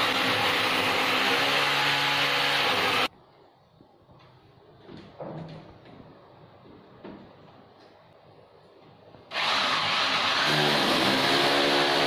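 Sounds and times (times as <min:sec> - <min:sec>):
electric drill boring into wall: 0:00.0 - 0:03.1, 0:09.3 - 0:12.0.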